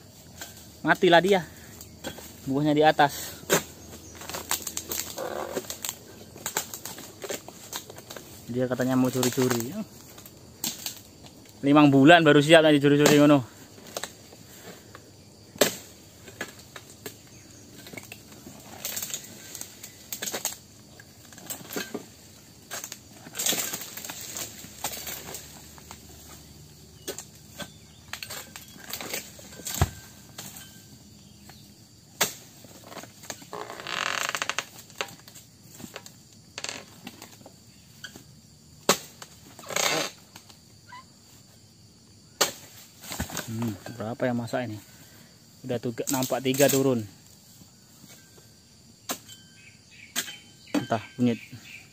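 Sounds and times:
leaf rustling: 0.0 - 38.0, 42.4 - 48.3
sickle blade hacking fronds: 3.4 - 8.4, 9.0 - 11.1, 12.9 - 14.2, 15.6 - 20.6, 21.2 - 30.8, 32.2 - 33.4, 38.8 - 40.4, 42.4 - 43.8.

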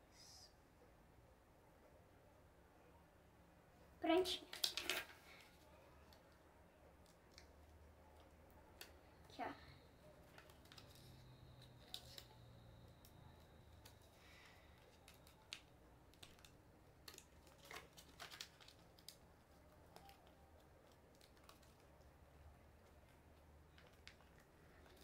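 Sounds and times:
paper being folded: 4.2 - 6.2, 10.0 - 25.0.

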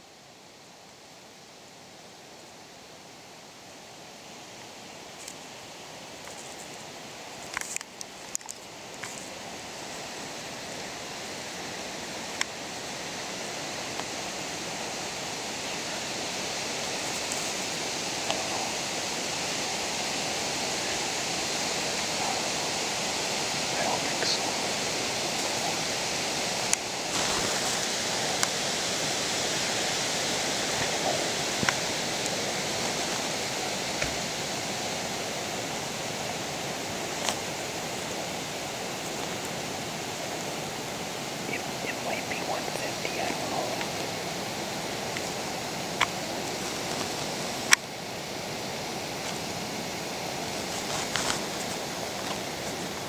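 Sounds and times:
steady rushing noise: 2.6 - 53.0.

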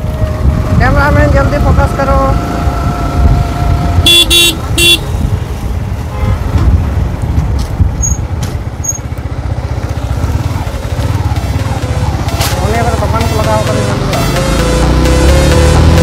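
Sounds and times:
motorcycle engine rumbling: 0.0 - 16.0
vehicle horn honking: 4.0 - 5.2, 6.1 - 6.6.

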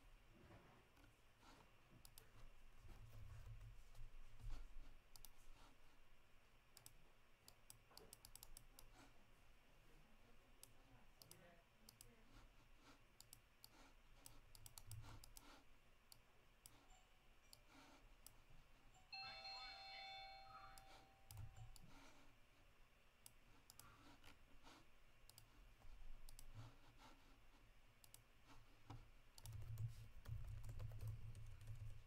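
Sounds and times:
mouse and keyboard clicking: 6.8 - 9.0, 13.2 - 16.8, 23.2 - 25.6, 26.2 - 26.7, 28.9 - 32.0.

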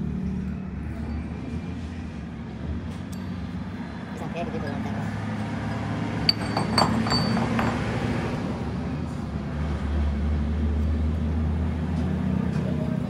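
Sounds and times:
short metallic clinks: 6.3 - 7.8.

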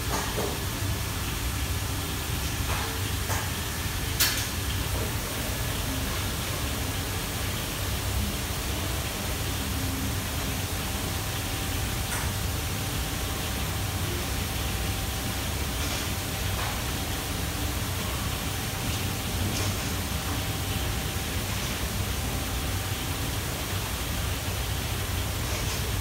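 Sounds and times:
wok burners and extraction hood: 0.0 - 26.0.

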